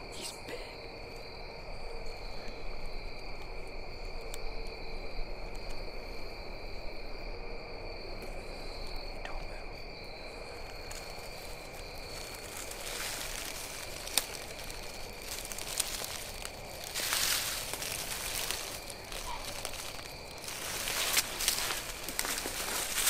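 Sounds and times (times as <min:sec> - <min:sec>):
crickets trilling: 0:00.0 - 0:23.0
soft rustling noise: 0:10.4 - 0:23.0.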